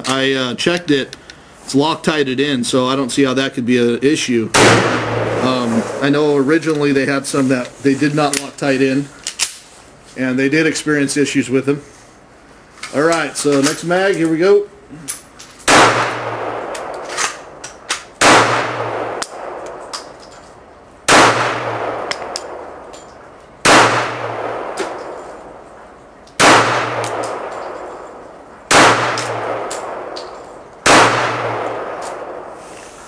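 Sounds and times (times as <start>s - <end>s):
pistol shots echoing: 4.6s - 5.5s, 15.7s - 17.3s, 18.2s - 19.9s, 21.1s - 22.9s, 23.6s - 25.6s, 26.4s - 32.6s.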